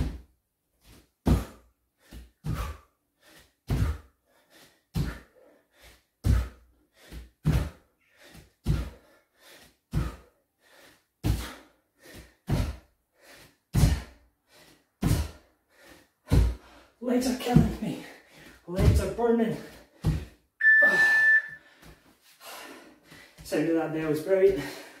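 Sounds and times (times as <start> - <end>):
bare feet landing on floor: 0.9 - 2.7, 6.2 - 7.8, 8.6 - 9.0, 18.8 - 20.3.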